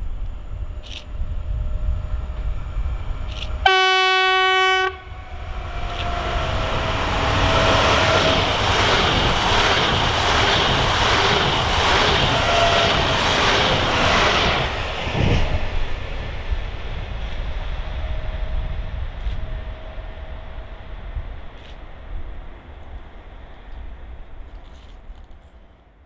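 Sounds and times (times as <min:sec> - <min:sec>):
wheels rushing on rail: 0:00.0 - 0:25.9
train horn: 0:03.6 - 0:08.5, 0:12.3 - 0:13.2.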